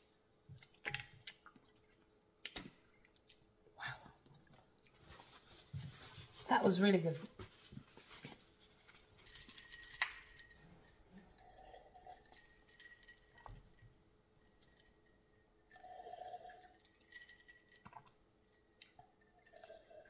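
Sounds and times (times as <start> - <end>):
ice clinking against glass: 9.3 - 13.6, 14.5 - 20.0
person gulping a drink: 15.6 - 20.0.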